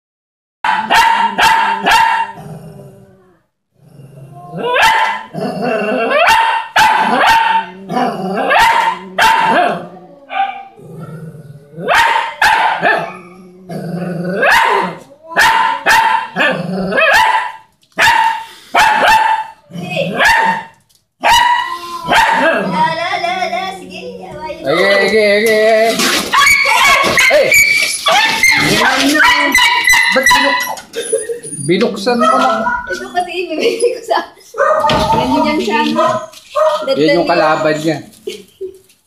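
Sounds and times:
dog barking: 0:00.6 - 0:02.4, 0:04.6 - 0:05.3, 0:06.1 - 0:07.8, 0:08.4 - 0:10.7, 0:11.8 - 0:13.2, 0:14.4 - 0:22.7, 0:26.3 - 0:30.7, 0:32.1 - 0:33.0, 0:34.6 - 0:37.0
dog growling low: 0:02.2 - 0:06.1, 0:07.6 - 0:11.9, 0:13.0 - 0:15.0, 0:16.4 - 0:17.1.

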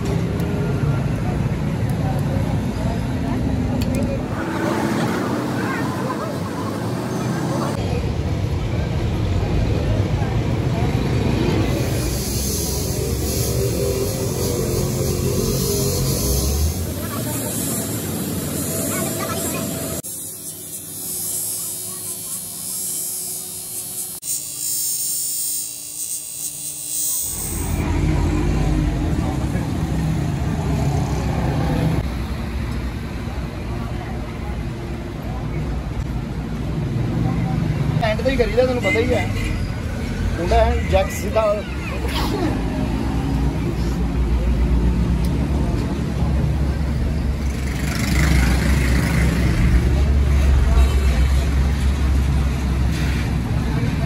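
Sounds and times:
bench grinder motor hum: 0:21.7 - 0:27.8.

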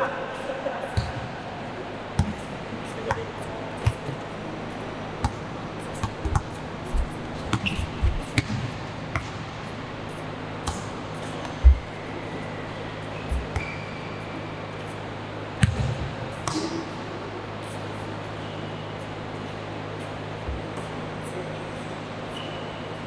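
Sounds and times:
steady low hum: 0:00.0 - 0:23.0
basketball bouncing on hard court: 0:02.2 - 0:02.5, 0:05.2 - 0:05.4, 0:06.0 - 0:09.6, 0:15.6 - 0:16.8.

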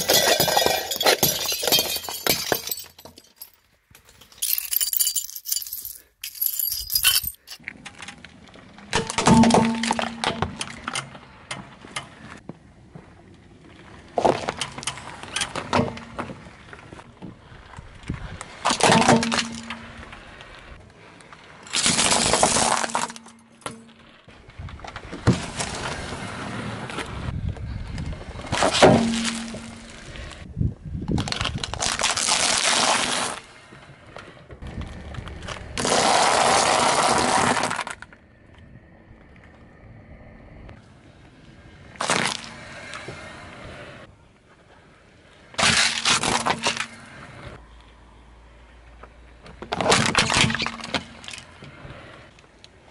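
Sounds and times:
car tyre crushing brittle objects: 0:00.0 - 0:05.2, 0:07.3 - 0:27.2, 0:27.9 - 0:30.4, 0:31.0 - 0:38.6, 0:41.9 - 0:43.0, 0:45.5 - 0:47.3, 0:49.4 - 0:52.9.

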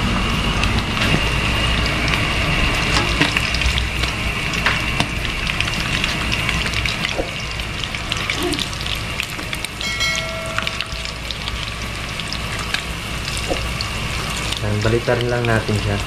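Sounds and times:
fish sizzling in hot oil: 0:00.0 - 0:16.0
short ringing tone: 0:09.8 - 0:11.3.

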